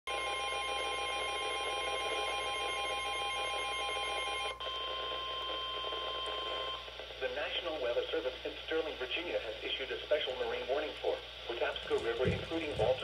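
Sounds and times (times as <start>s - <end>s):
steady warning alarm tone: 0.1s - 6.9s.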